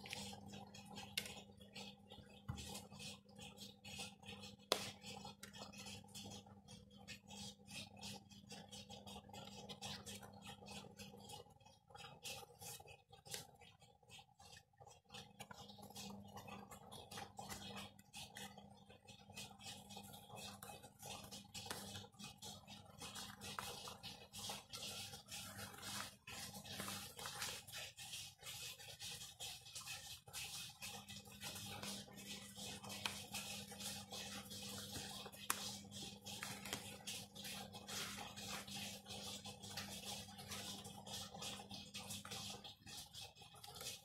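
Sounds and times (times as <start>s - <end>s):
paper and card rustling: 25.4s - 27.7s, 32.8s - 38.7s.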